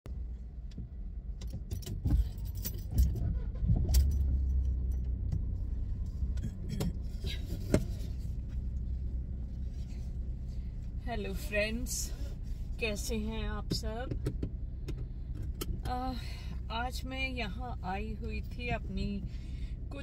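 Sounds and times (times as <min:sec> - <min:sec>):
steady low rumble: 0:00.1 - 0:20.0
sharp clicks and knocks: 0:00.6 - 0:05.5, 0:13.6 - 0:15.9
keys jangling: 0:01.7 - 0:03.3.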